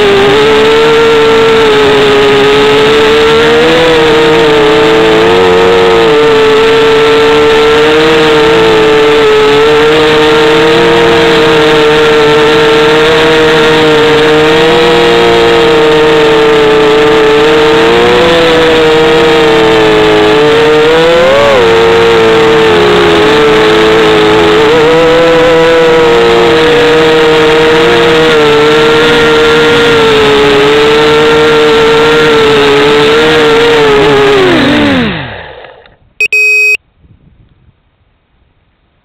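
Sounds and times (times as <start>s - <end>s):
drone propellers whining: 36.2s - 36.8s.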